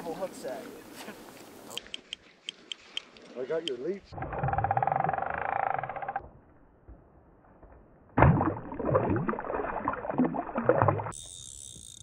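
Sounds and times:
fish splashing in shallow water: 8.2s - 12.0s.

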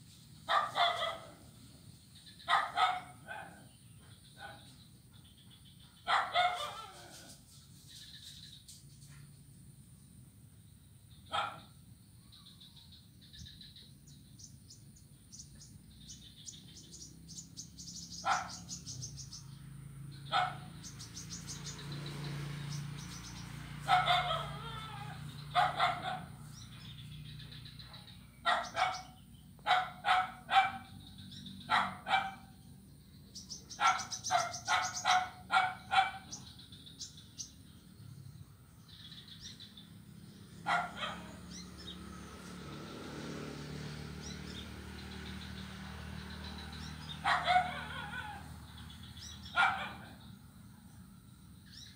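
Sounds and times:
short animal calls: 23.9s - 25.7s
high bird chirps: 33.2s - 37.7s.

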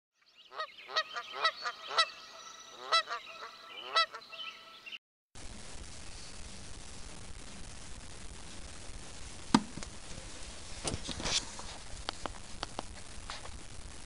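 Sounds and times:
loud bird calls sweeping up: 0.3s - 5.0s
steady background hiss: 5.4s - 14.0s.

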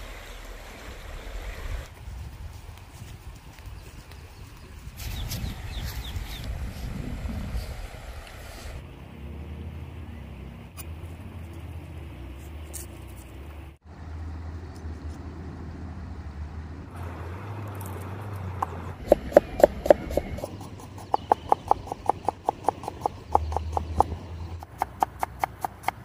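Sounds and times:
knife chopping on plastic board: 19.0s - 26.0s.

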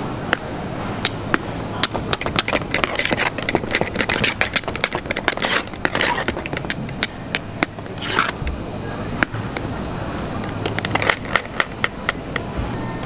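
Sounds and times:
wet scraping: 2.5s - 6.6s.

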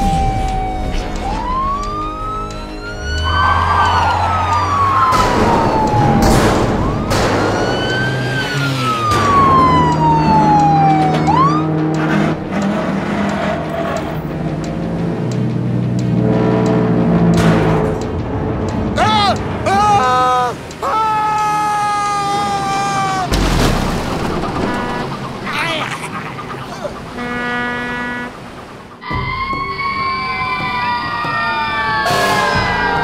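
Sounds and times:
police siren wailing: 0.0s - 15.3s, 19.0s - 23.3s, 28.4s - 33.0s
background music: 0.0s - 33.0s
sudden crashes: 23.3s - 25.4s.

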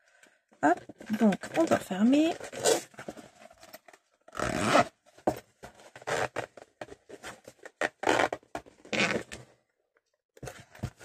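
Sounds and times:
zip scraping closed: 2.3s - 9.4s.

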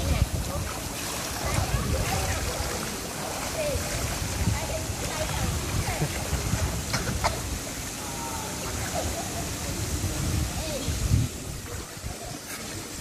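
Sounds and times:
swimmer splashing: 0.0s - 13.0s
water pouring into a pool: 0.0s - 13.0s.

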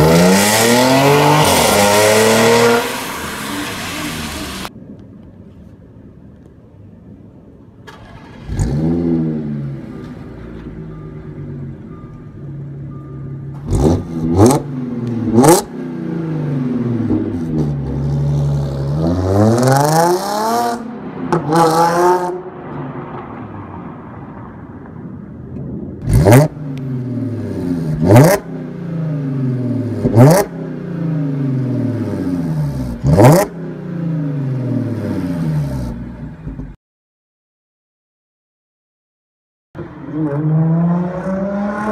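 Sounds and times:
car engine revving and idling: 0.0s - 4.7s, 26.0s - 36.8s.

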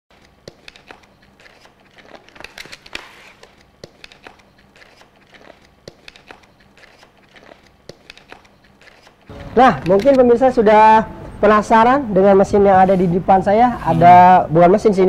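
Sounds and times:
packaging crinkling scrape: 0.4s - 10.2s.

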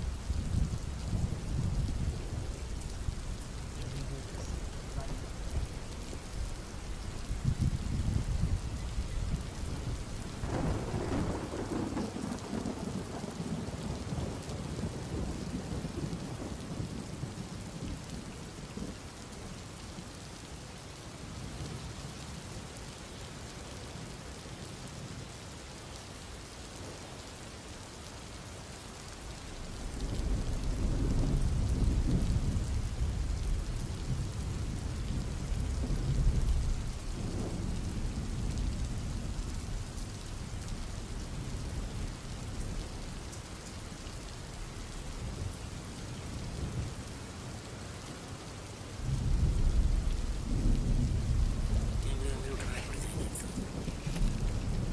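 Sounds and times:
thunder rumbling: 0.0s - 18.2s, 29.6s - 43.2s, 49.0s - 54.9s
rain hissing: 0.0s - 54.9s.

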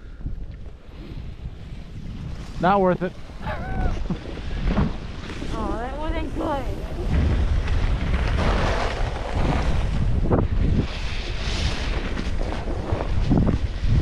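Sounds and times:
wind buffeting microphone: 0.0s - 14.0s
skis scraping over snow: 4.2s - 14.0s.

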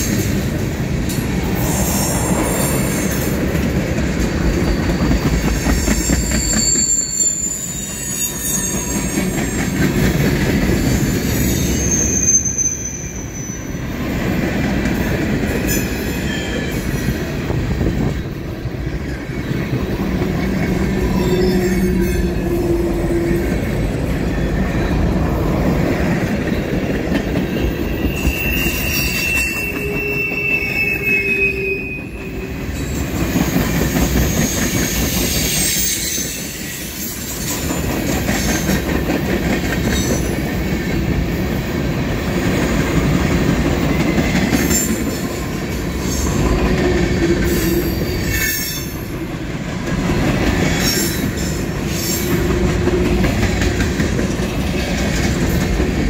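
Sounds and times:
train wheels rumbling on rails: 0.0s - 56.0s
high wheel squeal: 4.4s - 9.8s, 10.8s - 14.1s, 20.9s - 23.7s, 27.4s - 37.8s
clacking over rail joints: 52.3s - 56.0s.

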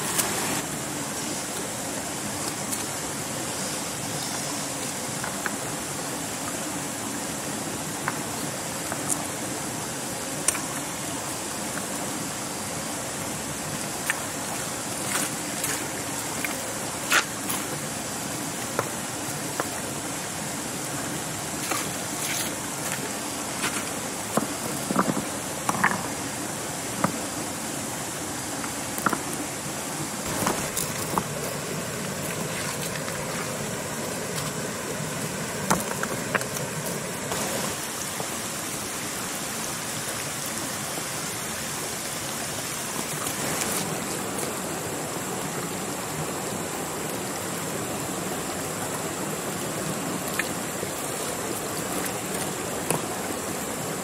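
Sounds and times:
steady rushing noise: 0.0s - 39.6s.

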